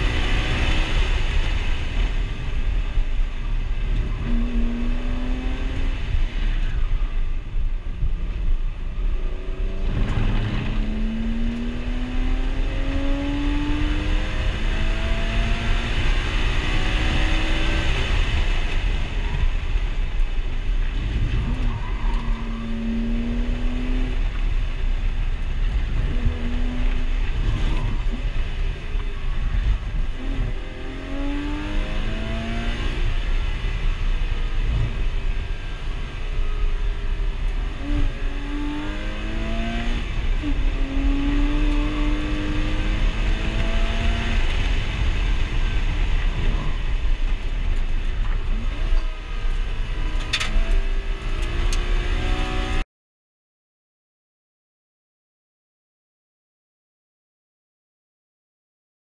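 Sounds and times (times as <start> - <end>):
car engine revving: 0.0 - 2.5, 9.0 - 19.3, 20.8 - 24.7, 25.3 - 52.8
road and wind noise: 0.0 - 52.8.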